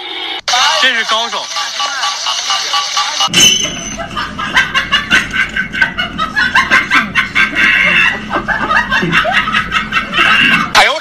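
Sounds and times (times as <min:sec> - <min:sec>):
person laughing hard: 0:04.0 - 0:10.8.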